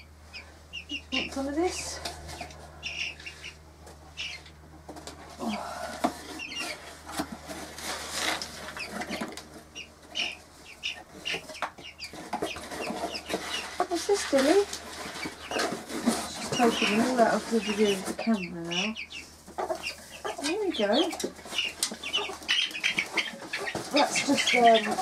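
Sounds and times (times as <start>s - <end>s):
hen clucking: 0.0s - 7.5s, 8.2s - 25.0s
chicks cheeping: 0.0s - 25.0s
cardboard box rustling: 12.1s - 18.2s.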